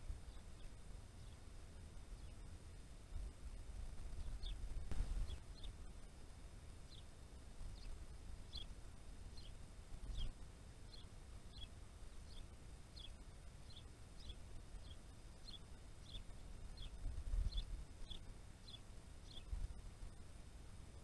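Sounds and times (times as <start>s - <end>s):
songbird calling: 0.0s - 1.5s, 2.1s - 2.4s, 4.1s - 5.9s, 6.9s - 19.7s
low outdoor rumble: 0.0s - 21.0s.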